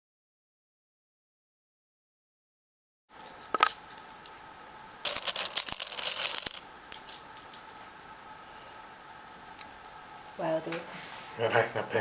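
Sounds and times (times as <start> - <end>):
coins clinking in ceramic pot: 5.0 - 7.2.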